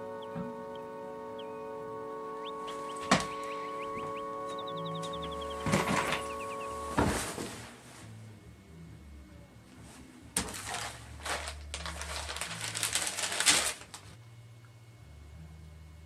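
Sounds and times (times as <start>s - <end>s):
newspaper rustling: 10.4s - 14.1s.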